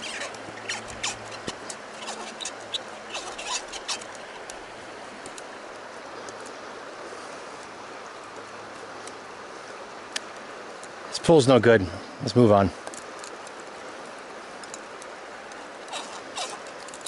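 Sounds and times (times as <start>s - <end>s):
fishing line squeaks and clicks: 0.0s - 4.6s, 14.6s - 17.0s
stream rushing: 0.0s - 17.0s.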